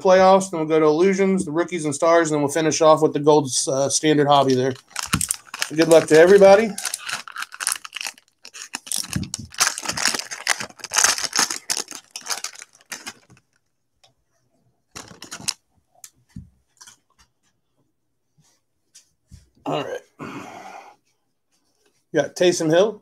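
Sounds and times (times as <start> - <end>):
plastic wrapper crinkling and tearing: 4.4 - 13.6, 14.9 - 15.6.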